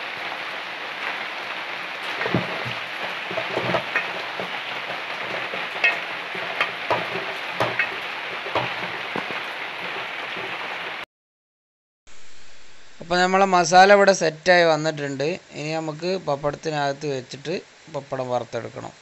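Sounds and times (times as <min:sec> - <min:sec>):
masala sizzling in a pot: 0:00.0 - 0:11.0
spatula scraping against pot: 0:02.0 - 0:10.9.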